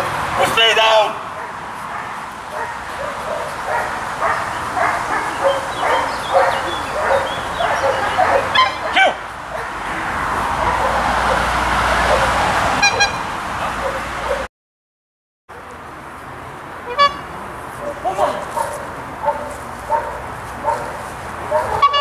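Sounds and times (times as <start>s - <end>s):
dog barking: 1.3s - 9.8s, 10.6s - 13.0s, 13.7s - 14.5s, 17.8s - 22.0s.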